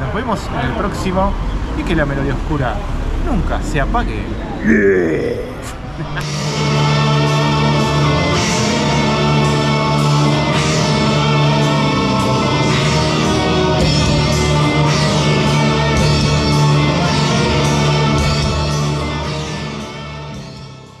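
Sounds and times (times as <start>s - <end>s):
symphonic metal with electric guitars: 6.2s - 20.9s.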